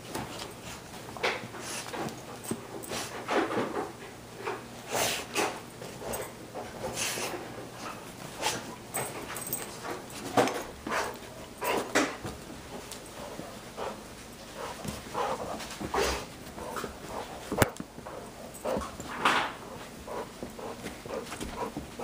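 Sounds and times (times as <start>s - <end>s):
scuffling on a cushioned dog bed: 4.8s - 22.0s.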